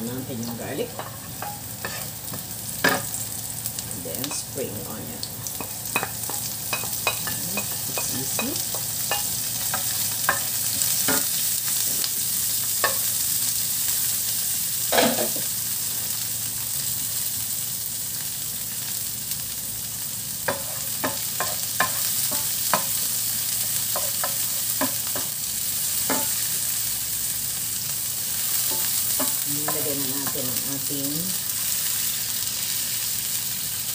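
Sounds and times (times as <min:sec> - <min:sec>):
food sizzling in hot oil: 0:00.0 - 0:33.9
wooden spoon scraping a pan: 0:00.8 - 0:02.4.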